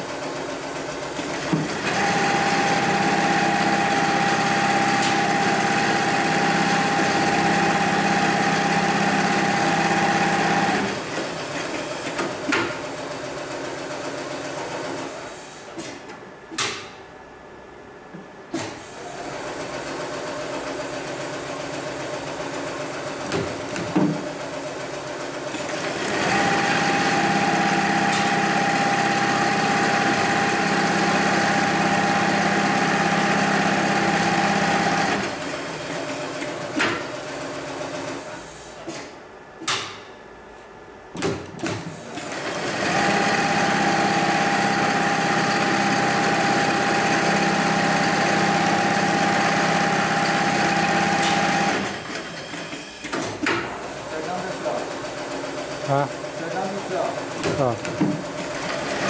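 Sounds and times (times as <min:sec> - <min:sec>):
sewing machine whining: 0:01.1 - 0:12.4, 0:24.9 - 0:38.4, 0:42.0 - 0:53.2, 0:54.1 - 0:59.0.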